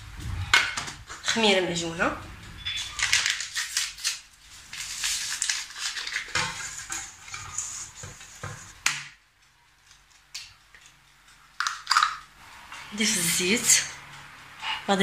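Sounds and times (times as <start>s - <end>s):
hands rubbing dry flour: 4.5s - 8.8s.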